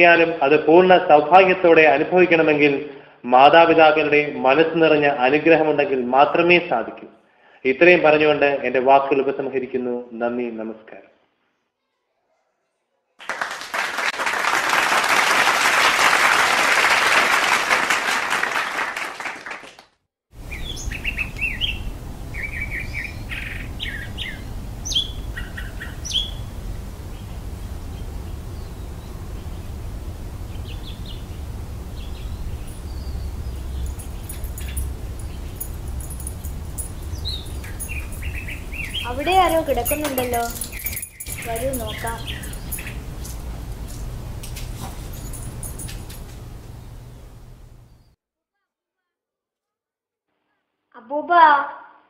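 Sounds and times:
audience applauding: 0:13.2 - 0:19.9
low steady background rumble: 0:20.4 - 0:48.1
birds chirping: 0:20.4 - 0:48.2.

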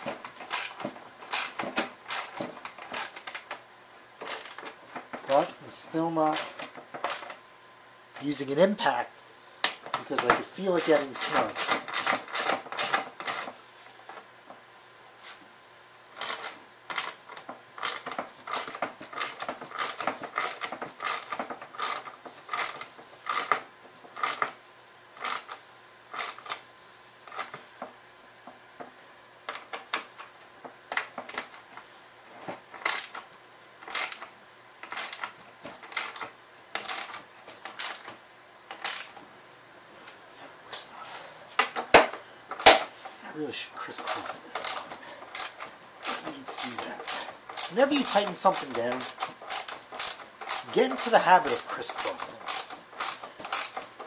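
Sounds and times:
hand ratchet clicking: 0:00.0 - 0:03.6, 0:06.2 - 0:07.4, 0:10.2 - 0:13.5, 0:16.2 - 0:24.6, 0:25.2 - 0:26.6, 0:32.7 - 0:38.1, 0:38.7 - 0:39.2, 0:43.9 - 0:54.0.

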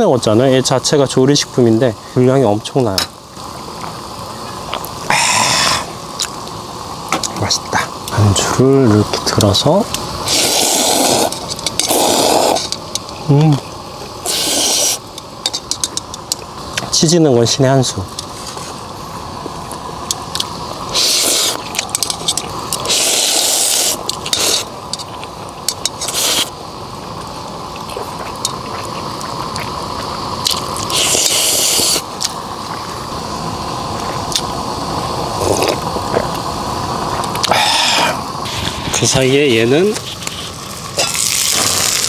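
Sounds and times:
food sizzling on griddle: 0:00.0 - 0:42.0.

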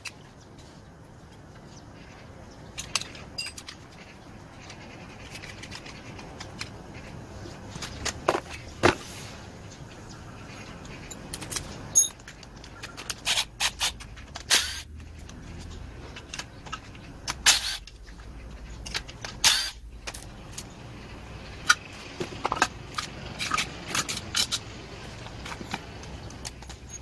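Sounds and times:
sharp knocks of metal parts: 0:02.7 - 0:03.8, 0:10.9 - 0:14.8, 0:21.6 - 0:27.0
metal parts clicking and clinking: 0:02.8 - 0:04.0, 0:10.8 - 0:14.8, 0:18.8 - 0:20.7, 0:22.4 - 0:27.0.

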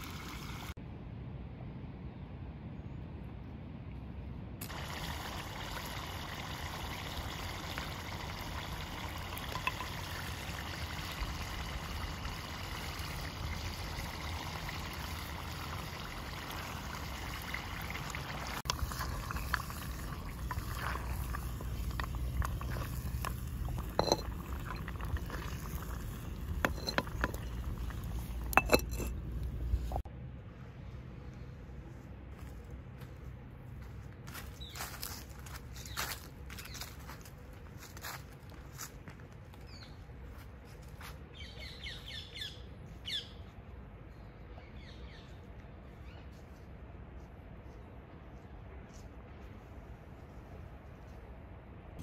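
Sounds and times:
curry bubbling in a pot: 0:04.6 - 0:28.5
fire rumbling and crackling: 0:06.6 - 0:30.0.

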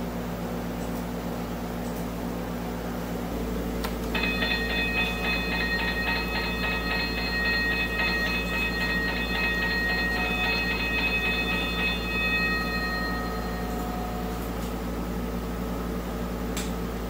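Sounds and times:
toy crossing bell ringing: 0:04.1 - 0:14.6.

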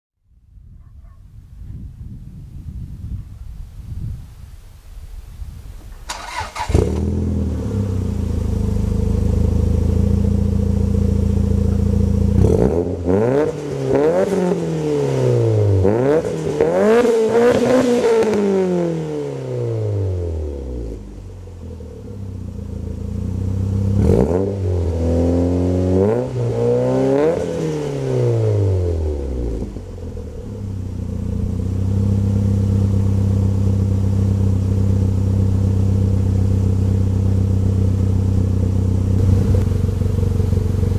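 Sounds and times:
car engine starting and idling: 0:05.8 - 0:14.6, 0:19.0 - 0:26.2, 0:27.1 - 0:40.9
car engine revving in blips: 0:06.1 - 0:40.9.

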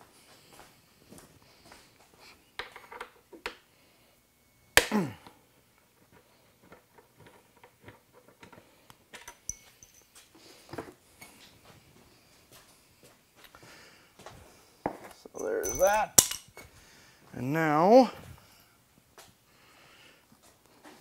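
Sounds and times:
parts clicking and knocking: 0:15.4 - 0:16.6.

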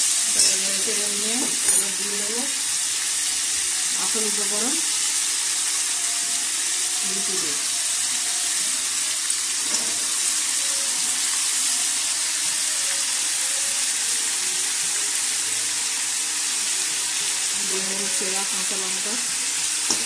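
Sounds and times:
vegetables sizzling in hot oil: 0:00.0 - 0:20.0.

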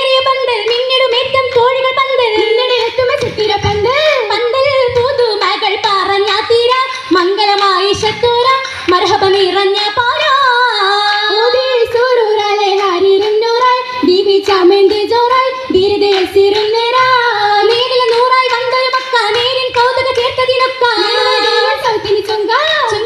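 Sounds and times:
girls singing through pa: 0:00.0 - 0:23.0
hand claps: 0:00.1 - 0:04.2, 0:10.9 - 0:22.0.

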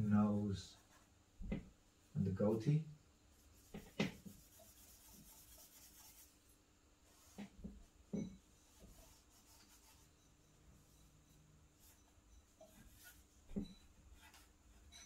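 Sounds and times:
charcoal scratching on paper: 0:03.4 - 0:06.4, 0:07.1 - 0:07.6, 0:08.6 - 0:10.3, 0:11.8 - 0:15.0.

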